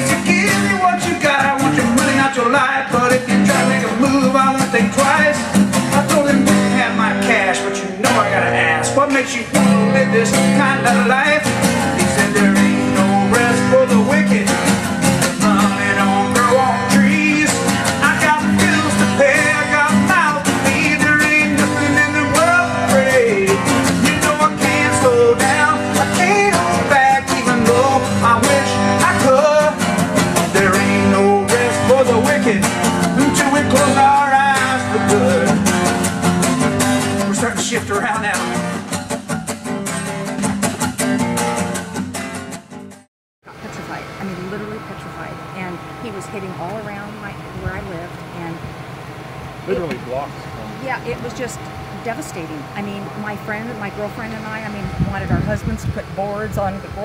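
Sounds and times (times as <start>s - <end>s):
guitar: 0.0s - 57.0s
person singing: 49.7s - 50.8s.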